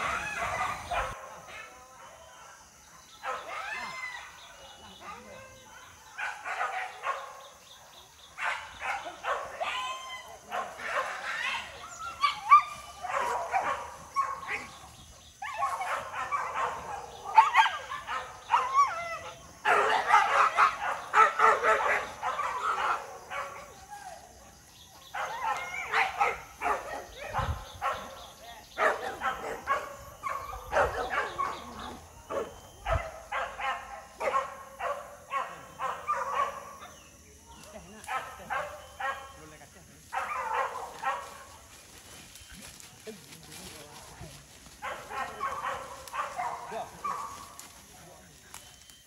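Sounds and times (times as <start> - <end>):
dogs barking and yelping: 0.0 - 37.2, 37.9 - 39.5, 40.1 - 42.2, 44.7 - 47.8.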